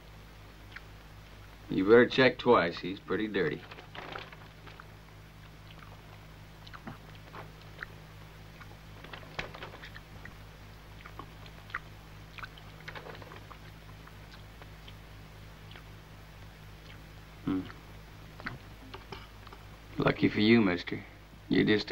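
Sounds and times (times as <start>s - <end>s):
steady low hum: 0.0s - 21.9s
man chewing and biting: 4.1s - 10.4s, 11.0s - 15.0s.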